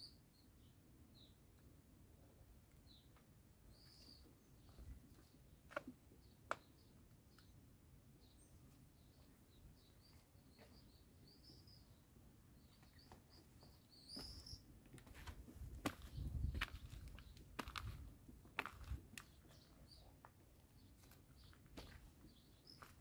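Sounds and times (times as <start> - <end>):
small birds chirping: 0.0 - 1.7, 2.7 - 23.0
footsteps on dirt path: 13.6 - 19.6, 21.0 - 23.0.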